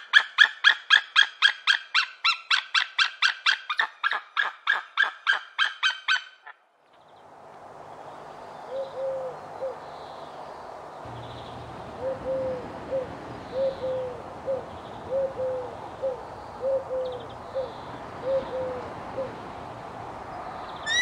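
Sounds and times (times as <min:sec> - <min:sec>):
steady outdoor hiss: 0:06.5 - 0:21.0.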